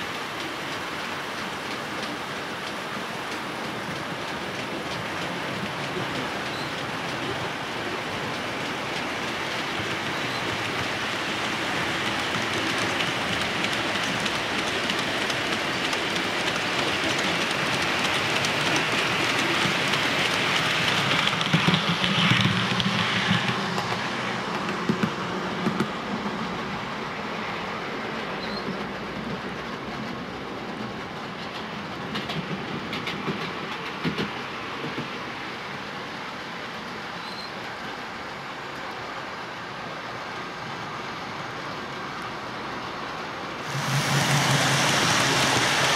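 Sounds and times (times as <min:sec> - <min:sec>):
wheels clicking over rail joints: 0:00.0 - 0:26.4, 0:28.2 - 0:35.2
model train wagons rumbling: 0:00.0 - 0:26.5, 0:37.0 - 0:45.9.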